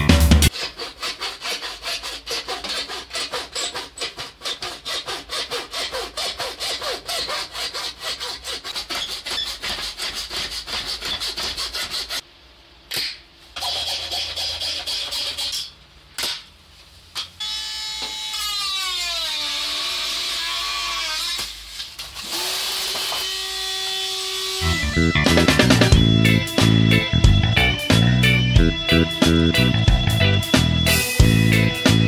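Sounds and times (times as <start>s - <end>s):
hacksaw cutting metal: 0.5s - 12.2s, 13.0s - 16.4s.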